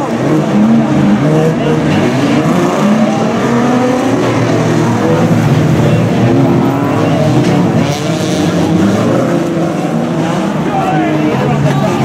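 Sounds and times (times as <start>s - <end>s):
racing car engines revving: 0.0s - 12.0s.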